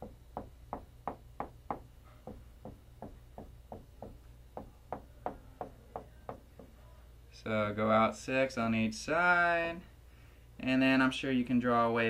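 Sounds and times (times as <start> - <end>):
marker tapping on whiteboard: 0.0 - 6.7.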